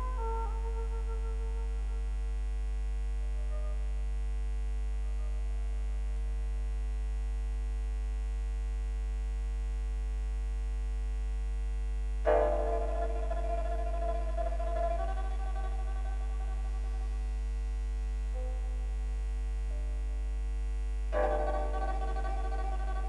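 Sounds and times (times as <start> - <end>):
low electrical hum: 0.0 - 23.0
faint background music: 12.3 - 20.4, 21.1 - 23.0.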